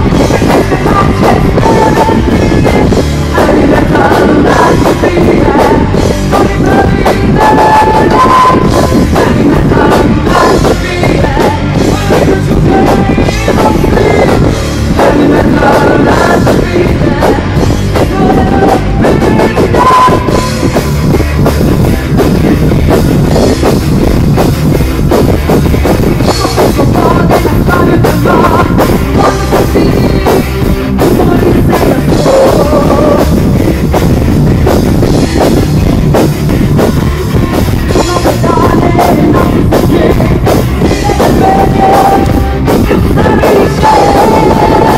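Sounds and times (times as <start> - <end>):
woman singing: 0.0 - 20.6, 26.3 - 33.4, 37.9 - 44.9
bass guitar: 0.0 - 44.9
drum kit: 0.0 - 44.9
electric guitars: 0.0 - 44.9.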